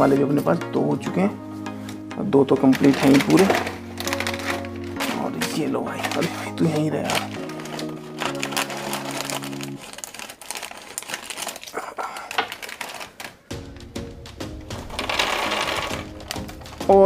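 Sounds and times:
background music: 0.0s - 11.6s, 12.2s - 17.0s
plastic packet crinkling: 2.6s - 13.7s, 14.7s - 17.0s.

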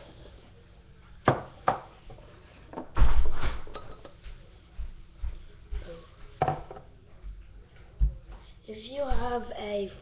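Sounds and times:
china and glass clinking: 3.7s - 4.2s.

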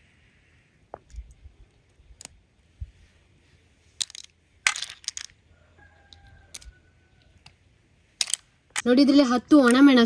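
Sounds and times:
clam shells clicking apart: 8.2s - 8.8s.

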